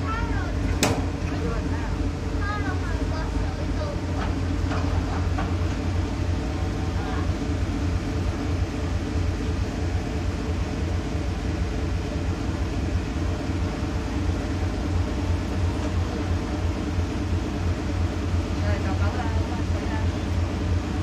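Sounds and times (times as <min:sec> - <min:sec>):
ferry engines droning: 0:00.0 - 0:21.0.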